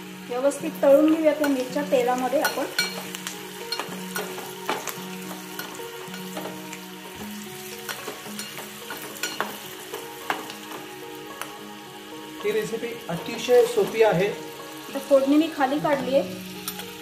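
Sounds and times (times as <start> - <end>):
chillies sizzling in hot oil: 0.0 - 17.0
steel spoon clicking on pot: 2.4 - 3.1, 7.9 - 9.6.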